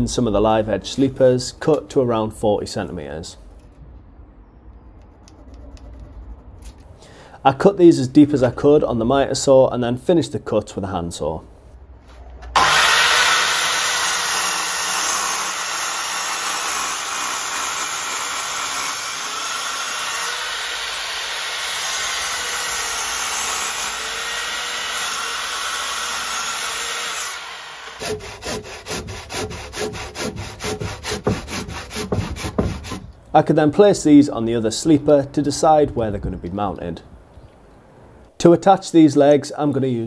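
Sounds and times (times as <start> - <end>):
miter saw cutting timber: 12.5 - 33.1
handsaw strokes: 12.6 - 33.2.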